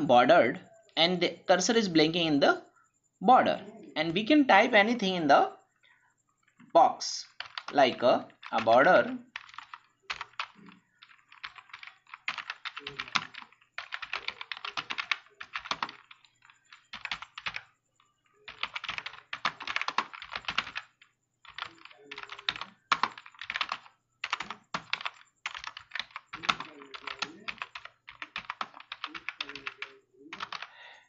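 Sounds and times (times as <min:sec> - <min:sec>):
computer keyboard typing: 0:07.2 - 0:30.9.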